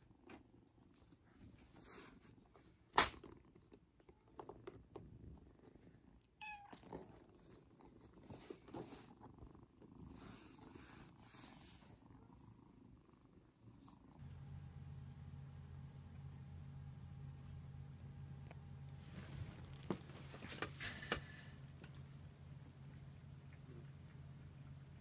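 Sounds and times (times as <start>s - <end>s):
kitten purring: 0.0s - 14.3s.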